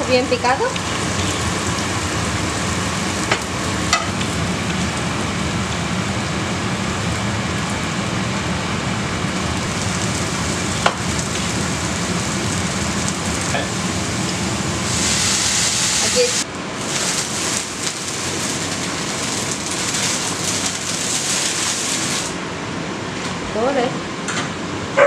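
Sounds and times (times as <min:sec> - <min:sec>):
mushrooms sizzling in a pan: 0:00.0 - 0:05.2, 0:09.6 - 0:22.4.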